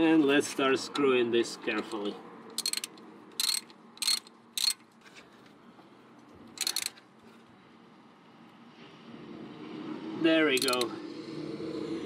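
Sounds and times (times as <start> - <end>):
ratchet wrench clicking: 2.5 - 4.9, 6.6 - 7.0, 10.6 - 10.9.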